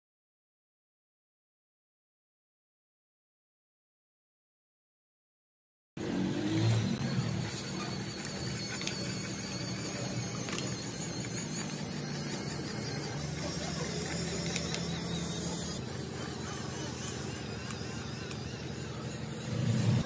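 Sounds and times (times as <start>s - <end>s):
toy motor whirring: 6.0s - 20.0s.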